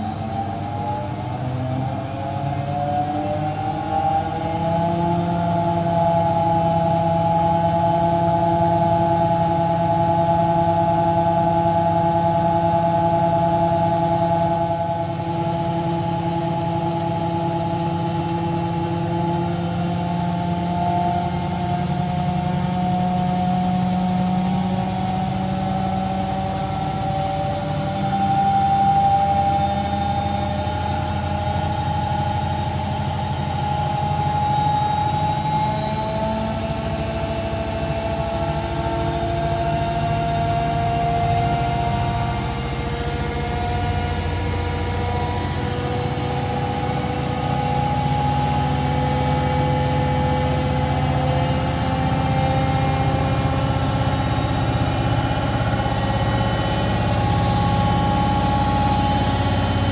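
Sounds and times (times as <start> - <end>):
washing machine spin whine: 0.0 - 59.9
low hum: 34.9 - 59.9.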